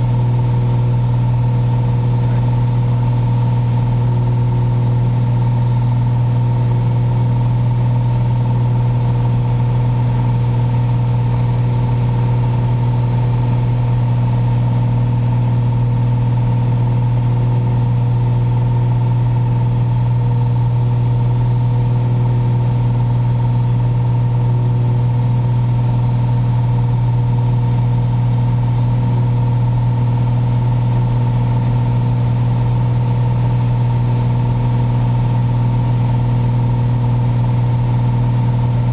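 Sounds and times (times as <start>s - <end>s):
aircraft engine hum in cabin: 0.0s - 38.9s.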